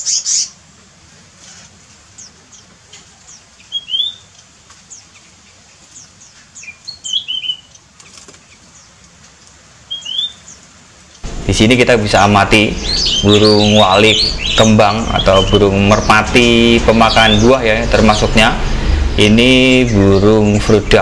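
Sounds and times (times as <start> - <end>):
loud bird twittering: 0.0 - 0.6, 1.5 - 7.8, 9.9 - 10.6, 11.2 - 21.0
high descending bird chirps: 3.7 - 4.3, 9.9 - 10.4, 11.2 - 21.0.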